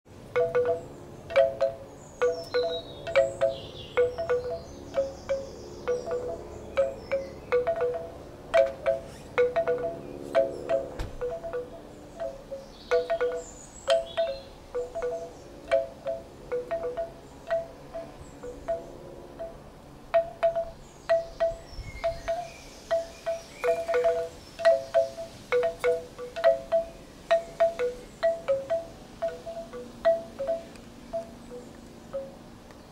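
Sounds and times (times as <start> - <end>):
bamboo wind chime clonking: 0.3 - 32.4
wind rumble on microphone: 20.6 - 22.9.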